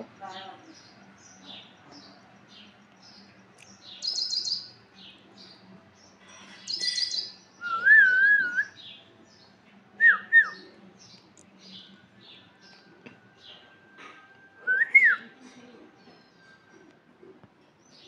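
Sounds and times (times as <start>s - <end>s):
faint high chirps: 3.6s - 4.8s, 6.1s - 8.9s.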